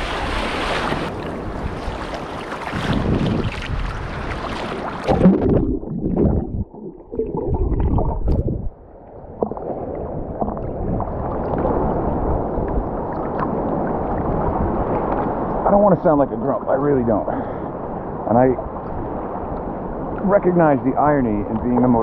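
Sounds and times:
seawater washing: 0:00.0 - 0:08.4
water knocks and swishes: 0:00.0 - 0:22.0.

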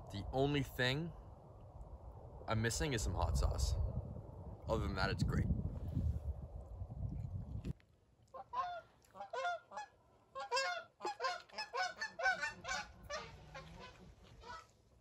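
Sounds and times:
geese honking: 0:08.4 - 0:14.8.

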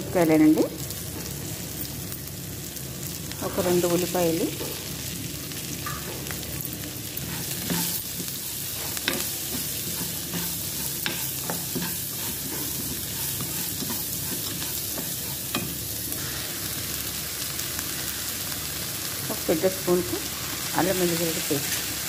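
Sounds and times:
food sizzling in hot oil: 0:00.0 - 0:22.0
spatula tapping and scraping pan: 0:07.2 - 0:15.9.

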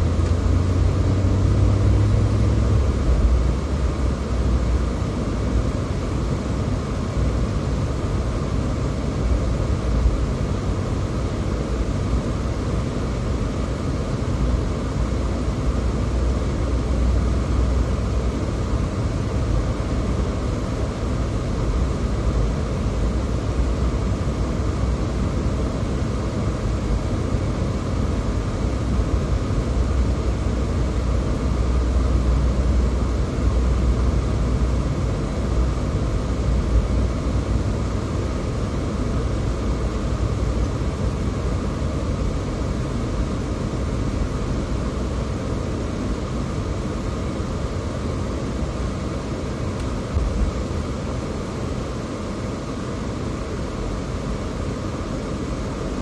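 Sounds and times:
car driving rumble: 0:00.0 - 0:05.4.

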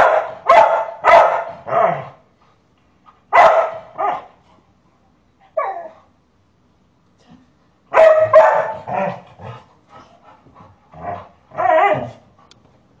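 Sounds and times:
dog barking: 0:00.0 - 0:02.0, 0:03.3 - 0:04.3, 0:07.9 - 0:09.2.

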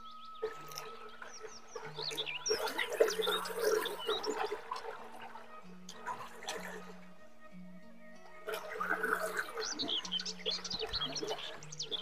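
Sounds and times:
bird chirps: 0:00.0 - 0:04.8, 0:09.2 - 0:12.0
slow background music: 0:00.0 - 0:12.0.

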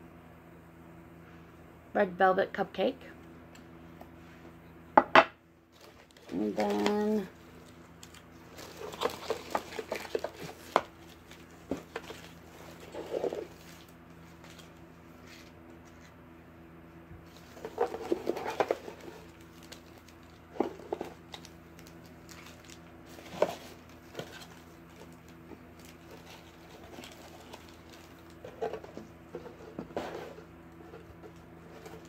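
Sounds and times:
steady low hum: 0:00.0 - 0:32.0
tissue paper rustling: 0:05.7 - 0:16.1.

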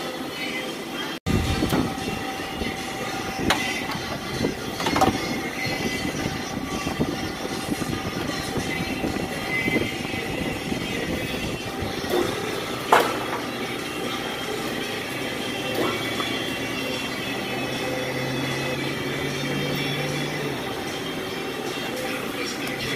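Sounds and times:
mechanical rumble: 0:01.3 - 0:22.9.

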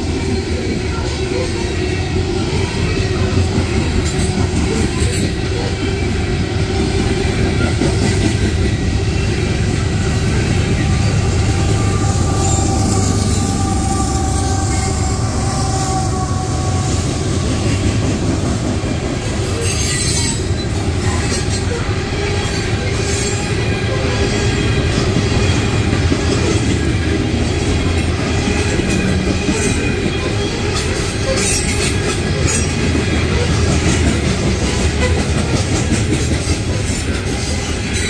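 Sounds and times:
diesel locomotive engine rumble: 0:00.0 - 0:38.0
steel wheels rolling on rails: 0:00.0 - 0:38.0
wheel clicks and squeals: 0:19.5 - 0:21.8, 0:28.7 - 0:34.0.

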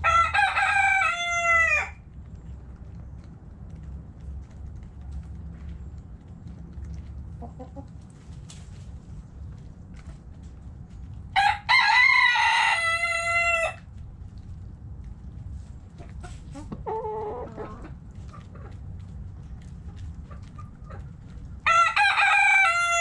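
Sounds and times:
rooster crowing: 0:00.0 - 0:02.0, 0:11.4 - 0:13.8, 0:21.6 - 0:23.0.

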